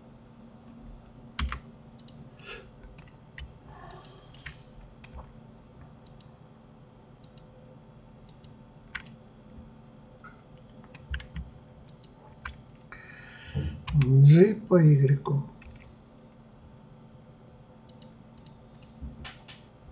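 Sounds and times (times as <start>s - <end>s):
faint steady hum: 0.0s - 19.9s
keyboard and mouse clicks: 1.4s - 2.2s, 2.8s - 6.3s, 7.2s - 7.5s, 8.3s - 9.2s, 10.2s - 12.9s, 13.8s - 14.1s, 15.6s - 15.9s, 17.9s - 19.7s.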